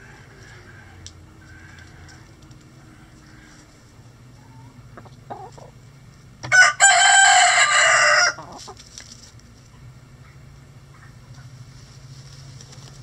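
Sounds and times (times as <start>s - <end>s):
hens clucking softly: 0.0s - 5.9s, 8.0s - 8.9s
rooster crowing: 6.5s - 8.5s.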